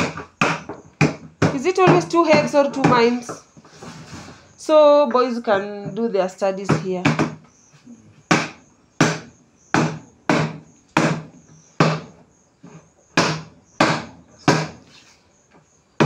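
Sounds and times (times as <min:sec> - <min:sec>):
hollow thumps of plastic table: 0:00.0 - 0:04.4, 0:06.6 - 0:07.5.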